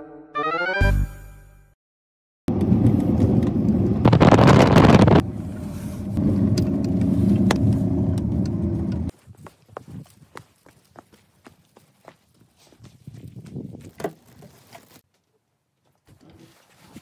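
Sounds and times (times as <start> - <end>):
engine and road rumble: 2.5 - 9.3
rushing noise: 3.9 - 8.8.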